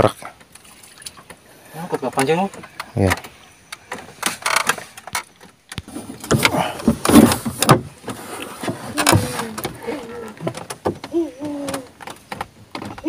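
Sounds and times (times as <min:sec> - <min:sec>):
fishing gear knocking and rattling: 0:00.4 - 0:09.8.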